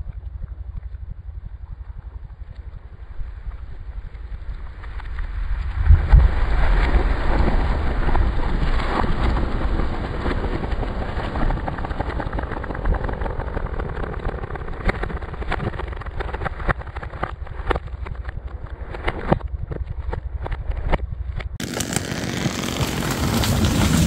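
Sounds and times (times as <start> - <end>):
steady low rumble: 0.0 - 21.8.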